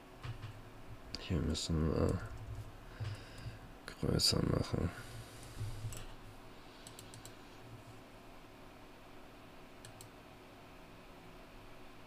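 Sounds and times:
faint low hum: 0.1 - 12.0
keyboard and mouse clicks: 0.2 - 0.6, 5.6 - 6.1, 6.8 - 7.4, 9.8 - 10.1.

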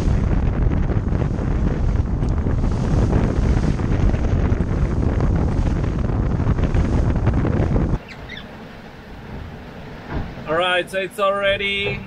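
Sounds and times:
water splashing along hull: 0.0 - 12.0
wind buffeting microphone: 0.0 - 12.0.

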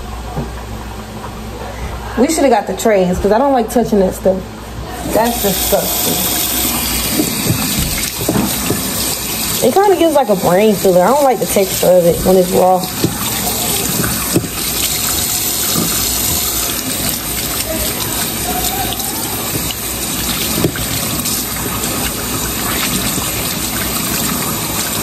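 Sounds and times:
faucet running into sink: 5.0 - 25.0
small knocks: 7.1 - 9.0, 12.9 - 16.7.

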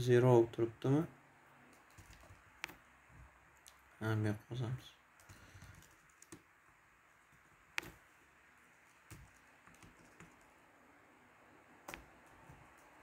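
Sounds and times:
keyboard keystrokes: 1.7 - 2.8, 5.2 - 6.5, 7.7 - 8.0, 9.0 - 10.6.

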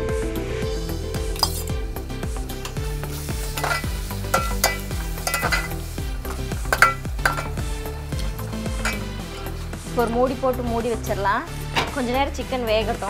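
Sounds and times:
masala sizzling in a pot: 0.9 - 13.0
ladle scraping a pot: 2.7 - 9.8.

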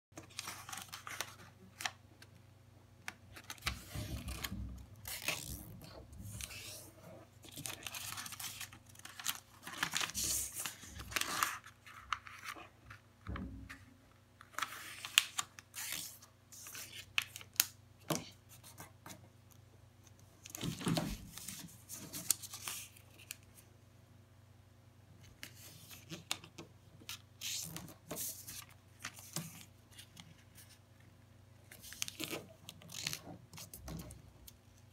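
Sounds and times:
paper rustling and creasing: 0.2 - 2.0, 3.3 - 13.8, 20.4 - 23.6, 31.6 - 34.9.

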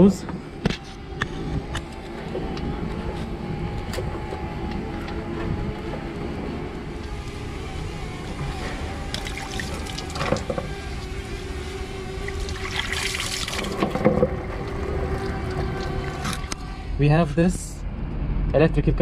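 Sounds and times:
coolant trickling and splashing: 6.7 - 16.7.

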